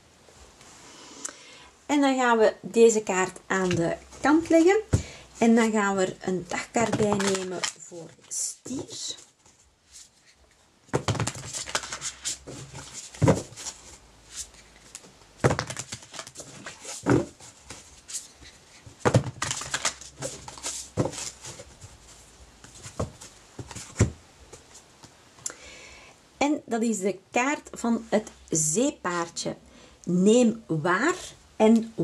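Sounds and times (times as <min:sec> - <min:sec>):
cards shuffling: 0:06.8 - 0:07.9, 0:10.9 - 0:24.1.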